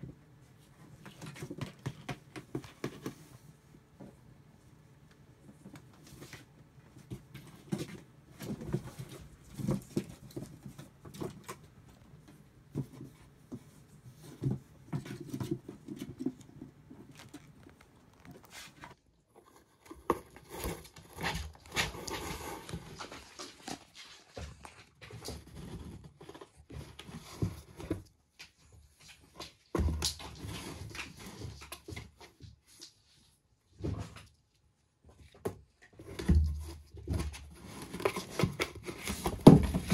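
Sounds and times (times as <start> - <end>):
paws scratching on cardboard: 5.6 - 33.3, 35.9 - 39.9.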